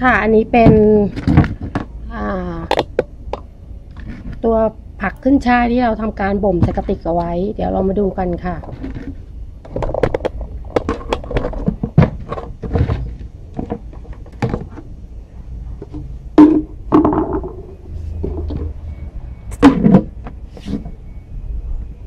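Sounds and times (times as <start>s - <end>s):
hand handling noise: 8.2s - 15.0s
plastic lid hollow knocks: 15.9s - 17.7s.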